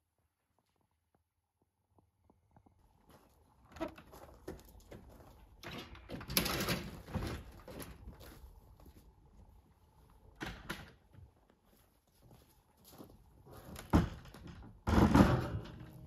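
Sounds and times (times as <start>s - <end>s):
garage door knocking and scraping: 13.9s - 16.0s.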